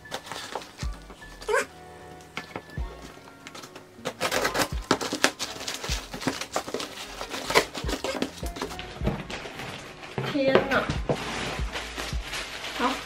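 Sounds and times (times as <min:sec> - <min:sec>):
paper packaging pulled open: 0:03.3 - 0:10.2
scissors cutting cardboard: 0:03.6 - 0:08.8.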